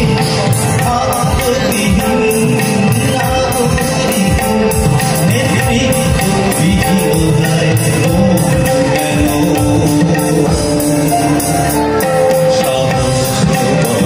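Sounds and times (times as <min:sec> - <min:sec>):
keyboard melody: 0:00.0 - 0:14.0
octapad rhythm: 0:00.0 - 0:14.0
tabla: 0:00.0 - 0:14.0.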